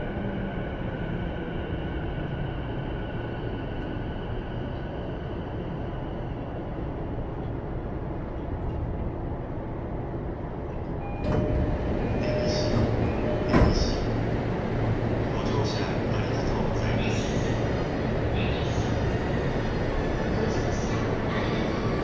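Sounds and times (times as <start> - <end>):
train running rumble: 7.2 - 22.0.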